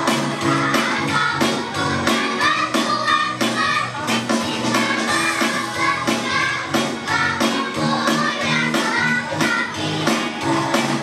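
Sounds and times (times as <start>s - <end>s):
children singing together: 0.0s - 11.0s
music with a steady beat: 0.0s - 11.0s.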